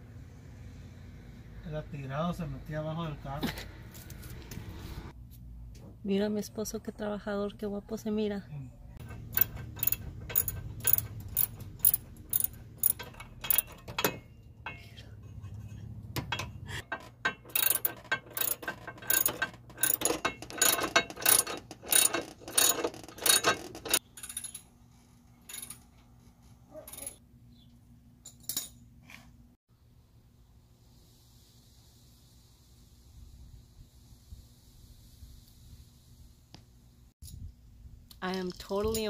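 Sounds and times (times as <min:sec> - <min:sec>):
ratchet wrench clicking: 0:09.0 - 0:14.1, 0:17.3 - 0:24.6.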